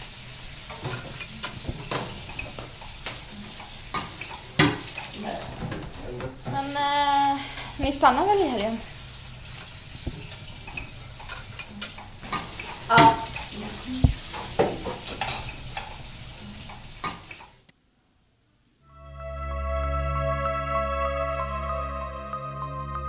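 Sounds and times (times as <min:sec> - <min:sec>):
steady hiss: 0:00.0 - 0:18.8
dishes clinking in a sink: 0:09.6 - 0:17.4
soft music: 0:18.8 - 0:23.0.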